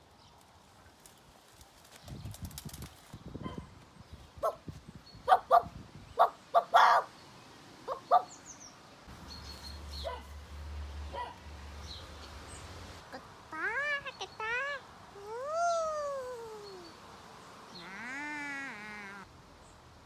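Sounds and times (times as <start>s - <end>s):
dog barking: 5.3s - 7.1s, 7.9s - 8.3s, 10.0s - 10.3s, 11.1s - 11.4s.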